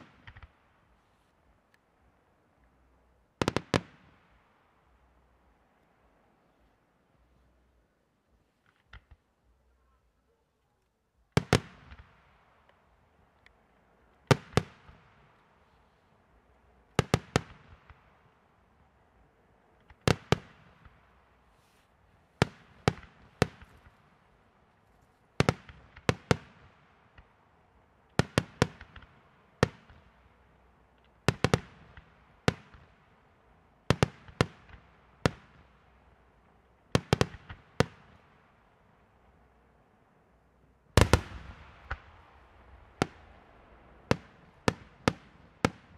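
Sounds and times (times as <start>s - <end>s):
firework shells bursting: 41.0s - 45.9s.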